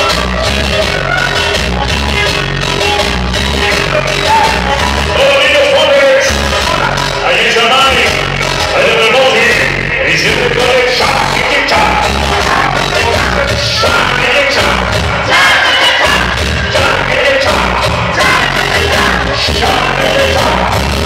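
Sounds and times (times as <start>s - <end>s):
loud music with heavy bass beat: 0.0s - 21.0s
man shouting into a microphone: 3.8s - 20.8s.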